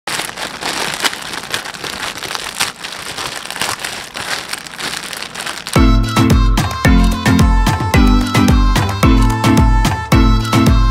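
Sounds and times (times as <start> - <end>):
plastic mailer bag crinkling: 0.0 - 8.0
loud music: 5.8 - 10.9.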